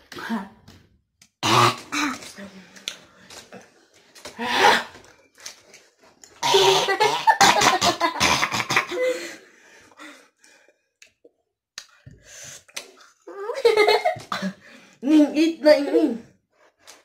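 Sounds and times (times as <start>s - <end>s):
boy coughing and spluttering: 1.4s - 2.3s, 6.4s - 9.1s, 13.9s - 14.6s.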